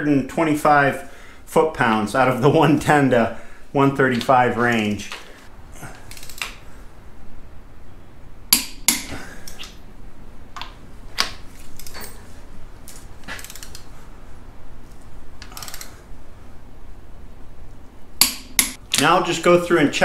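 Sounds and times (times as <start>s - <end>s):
torque wrench metallic clicks: 13.4s - 13.9s, 15.4s - 16.0s.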